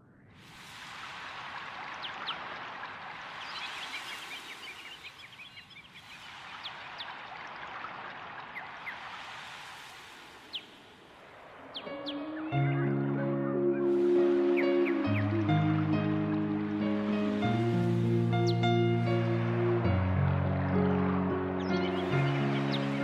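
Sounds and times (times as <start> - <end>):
flowing water rushing: 0.3 - 12.7, 13.8 - 23.0
bird chirps: 3.4 - 7.2, 11.7 - 15.9, 18.3 - 19.1, 21.6 - 23.0.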